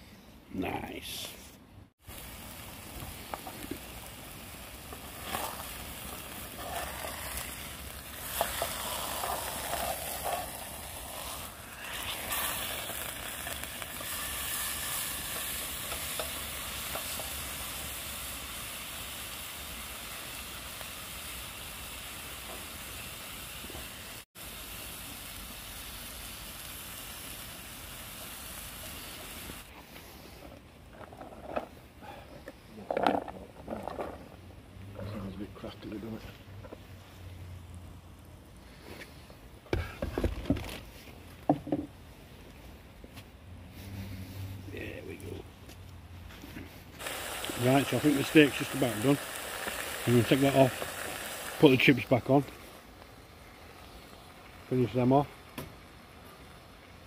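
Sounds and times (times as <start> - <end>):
steak sizzling in a frying pan: 2.0 - 29.7, 47.0 - 57.0.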